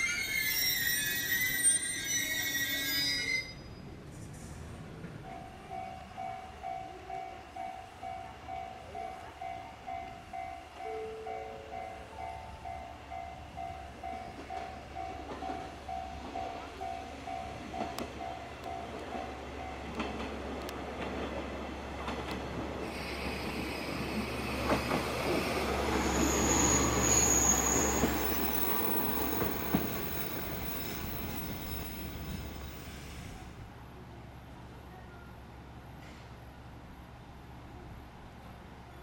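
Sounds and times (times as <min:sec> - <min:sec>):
high brake squeal: 0:00.0 - 0:04.5, 0:22.8 - 0:33.5
train engine and wheels rumbling: 0:00.0 - 0:39.0.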